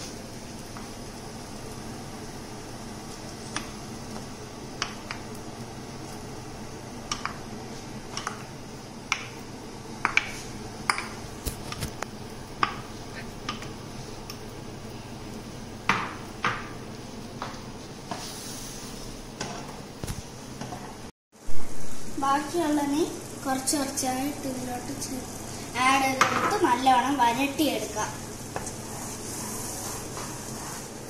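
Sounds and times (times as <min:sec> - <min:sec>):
wooden spoon scraping a bowl: 0:28.6 - 0:31.0.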